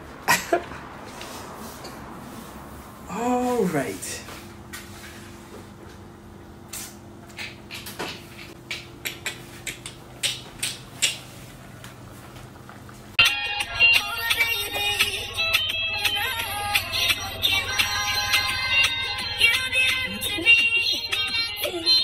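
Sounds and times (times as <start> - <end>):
steady low hum: 0.0 - 22.0
music: 13.2 - 22.0.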